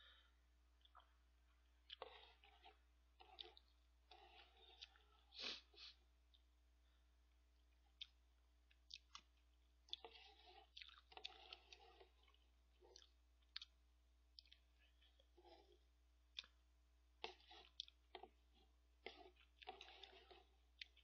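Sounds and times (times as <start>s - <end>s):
chewing and mouth sounds: 0.8s - 5.7s, 7.6s - 16.6s, 17.2s - 21.0s.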